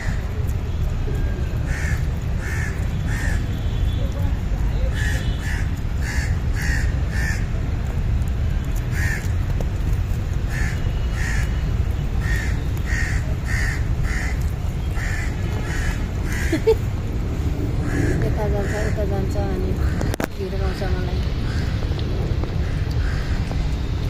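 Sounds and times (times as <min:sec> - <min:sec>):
crow cawing: 0:01.7 - 0:03.4, 0:04.9 - 0:07.5, 0:09.0 - 0:09.3, 0:10.5 - 0:11.6, 0:12.2 - 0:16.8, 0:17.8 - 0:19.0, 0:22.6 - 0:23.5.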